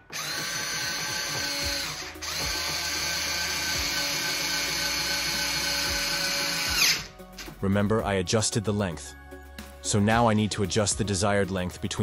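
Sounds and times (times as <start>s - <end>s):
electric screwdriver whining: 0.0s - 7.1s.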